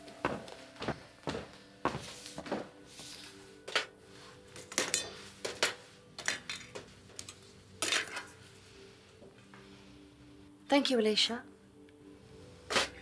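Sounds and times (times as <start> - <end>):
metal instruments clinking on steel tray: 4.7 - 8.3.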